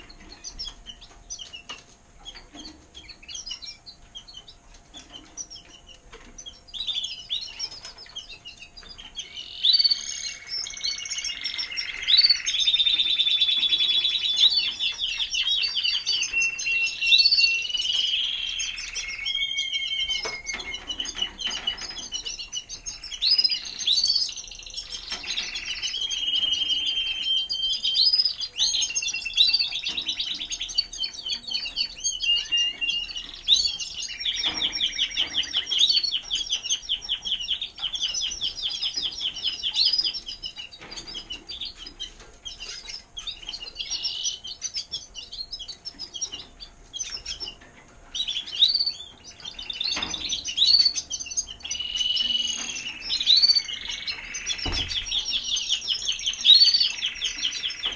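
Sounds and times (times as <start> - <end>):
canaries singing trills: 0.0 - 57.9.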